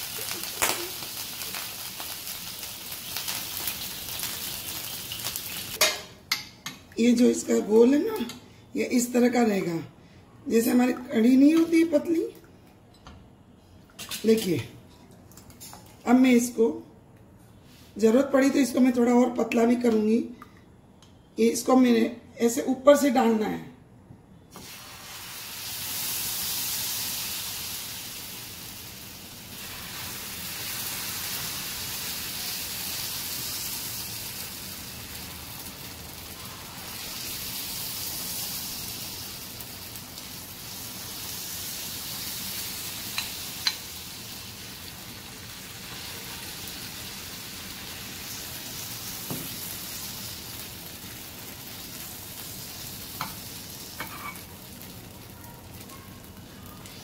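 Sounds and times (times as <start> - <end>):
batter sizzling on hot griddle: 0.0 - 6.0, 24.5 - 57.0.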